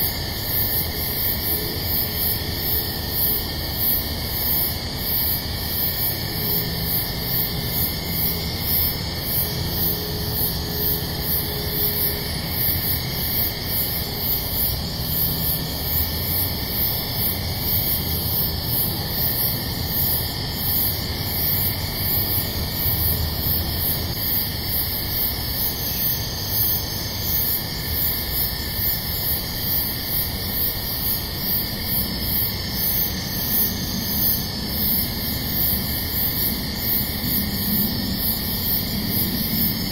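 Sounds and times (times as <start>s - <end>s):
night background hiss: 0.0s - 39.9s.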